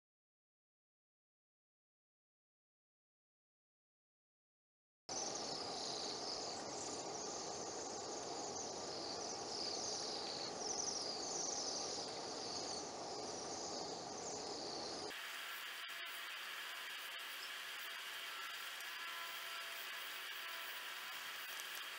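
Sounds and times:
birds trilling: 5.1 - 15.1
hiss: 13.9 - 21.9.

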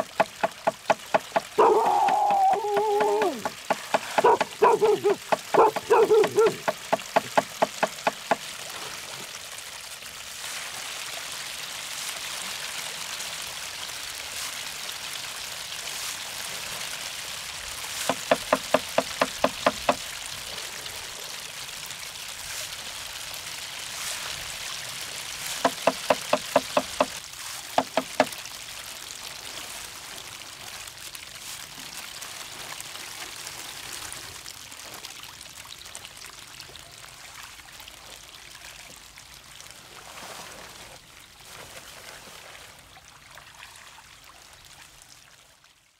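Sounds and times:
fish splashing at water surface: 0.0 - 13.5, 14.1 - 36.3.

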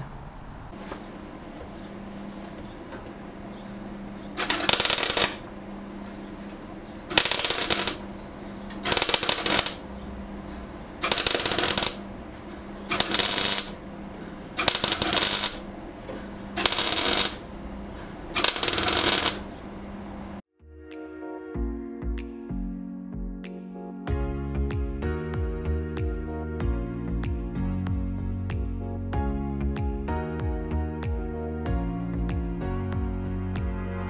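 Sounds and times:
steady low hum: 0.0 - 20.4
welding arc crackling: 4.4 - 5.5, 7.1 - 8.1, 8.7 - 9.8, 11.0 - 15.7, 16.5 - 17.5, 18.2 - 19.6.

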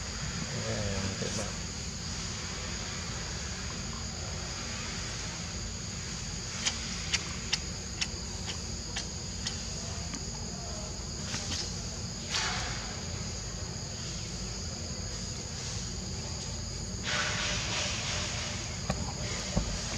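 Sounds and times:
insects buzzing: 0.0 - 19.9.

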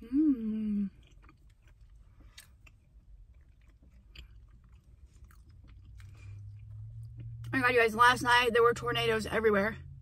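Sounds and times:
person chewing food: 0.7 - 7.5.

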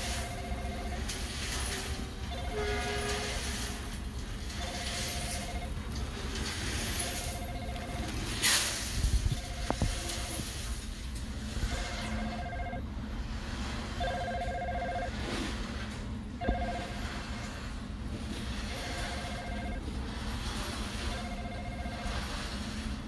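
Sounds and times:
electronic two-note ringing tone: 0.0 - 1.1, 2.3 - 3.3, 4.5 - 5.8, 6.9 - 8.4, 9.3 - 10.5, 11.6 - 12.8, 14.0 - 15.3, 16.4 - 17.1, 18.7 - 19.8, 21.0 - 22.4
low rumbling background: 0.0 - 23.0.

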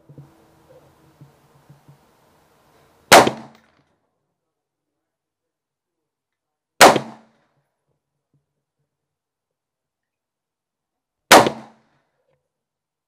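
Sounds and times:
rifle shots: 3.1 - 3.7, 6.8 - 7.4, 11.3 - 11.8.

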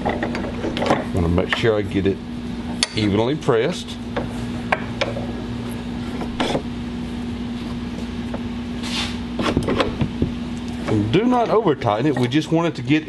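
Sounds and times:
vise clicking and creaking: 0.0 - 1.7
steady low hum: 0.0 - 13.0.

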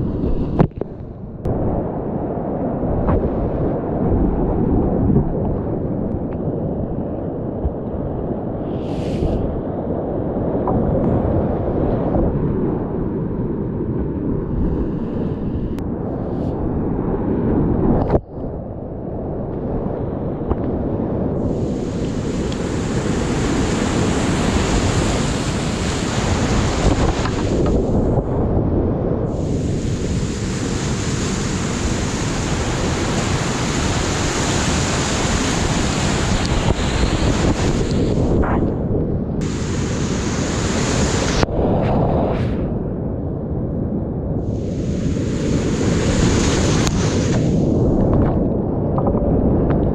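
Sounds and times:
hiss of spray: 8.7 - 9.4, 21.5 - 27.9, 29.3 - 38.2, 39.4 - 41.4, 44.4 - 47.7
roar of rushing water: 21.4 - 28.6, 29.2 - 42.8, 44.4 - 48.5.

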